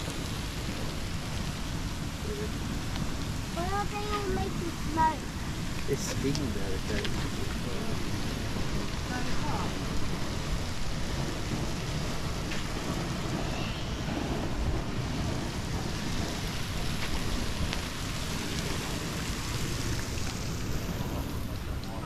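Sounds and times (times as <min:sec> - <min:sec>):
geyser water jets splashing: 0:00.0 - 0:22.0
wind rumble on microphone: 0:00.0 - 0:22.0.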